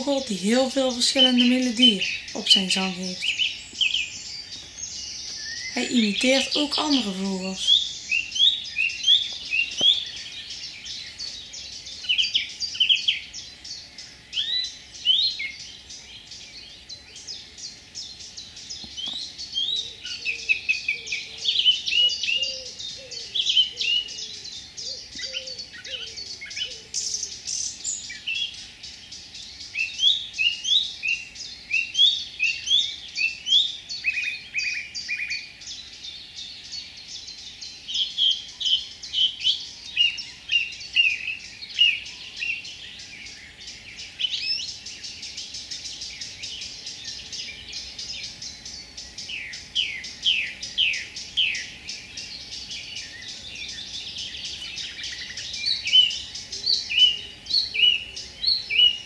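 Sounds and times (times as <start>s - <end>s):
warbler singing rapid varied song: 0.0s - 59.0s.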